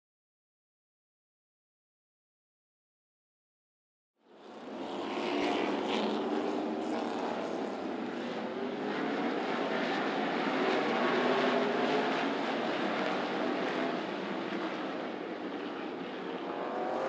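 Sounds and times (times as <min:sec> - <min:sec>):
race car engines roaring: 0:04.4 - 0:17.0.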